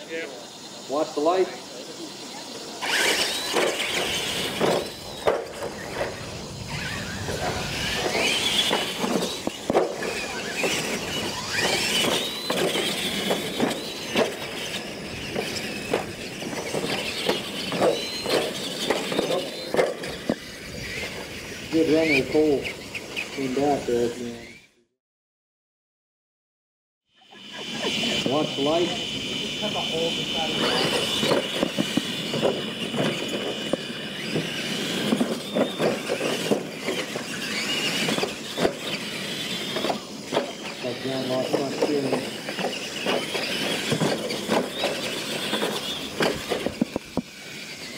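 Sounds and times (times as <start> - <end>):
toy truck motor whine: 0.0 - 24.8, 27.1 - 47.9
trucks knocking on ramps: 3.5 - 6.2, 6.8 - 20.4, 30.6 - 47.4
tyres and bodies clattering: 7.4 - 20.4, 30.6 - 47.2.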